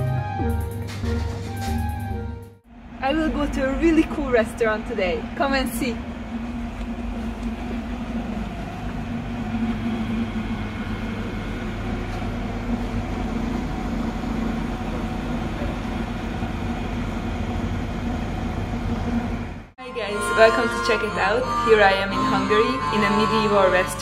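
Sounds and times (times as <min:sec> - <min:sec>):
low rumble: 0:00.9 - 0:19.7
low mechanical hum: 0:02.7 - 0:24.0.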